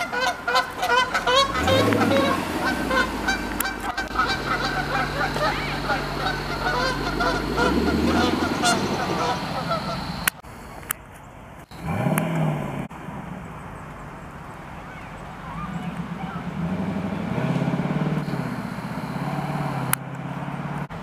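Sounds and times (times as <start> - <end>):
car engine revving: 0.0 - 10.9, 11.7 - 21.0
geese honking: 0.0 - 11.0, 14.7 - 20.0.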